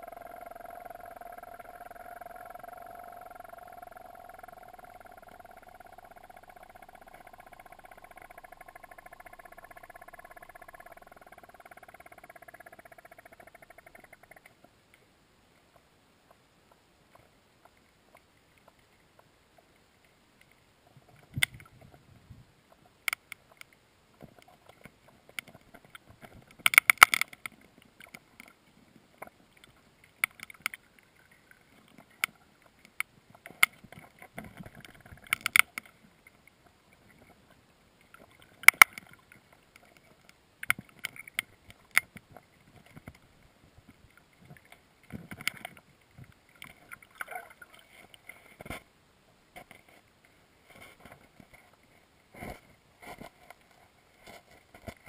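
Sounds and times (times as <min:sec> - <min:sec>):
muffled underwater knocks and clicks: 0:00.1 - 0:14.8, 0:20.4 - 0:28.6, 0:31.8 - 0:36.4, 0:37.0 - 0:47.4.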